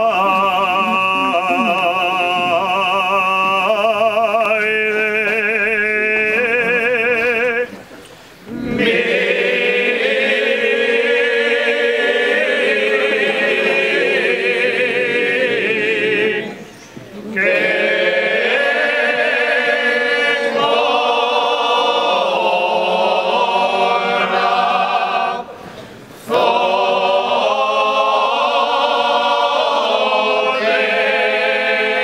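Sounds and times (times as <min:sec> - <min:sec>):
chorus of voices singing: 0:00.0 - 0:07.8, 0:08.5 - 0:32.0
person singing with vibrato: 0:00.0 - 0:07.8.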